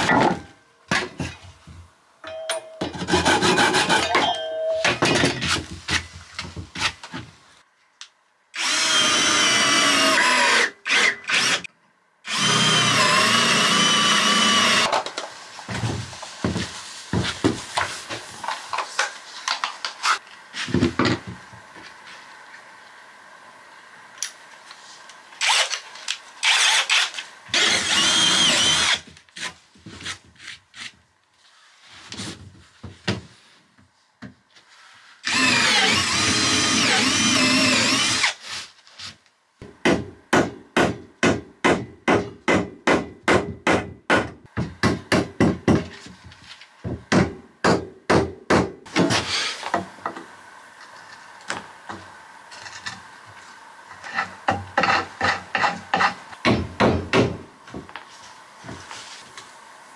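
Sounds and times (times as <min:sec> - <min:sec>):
cordless drill driving screws: 0:08.6 - 0:11.7, 0:12.3 - 0:14.9, 0:25.4 - 0:25.8, 0:26.4 - 0:29.0, 0:35.2 - 0:38.4.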